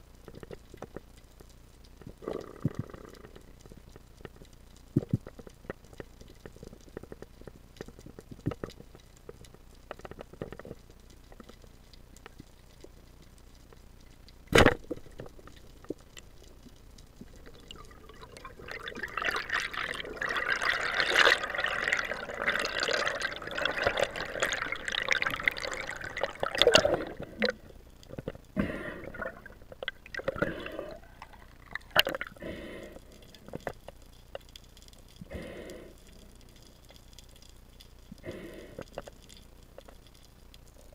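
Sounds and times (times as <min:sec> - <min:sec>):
water rushing and bubbling: 0:15.0 - 0:33.6.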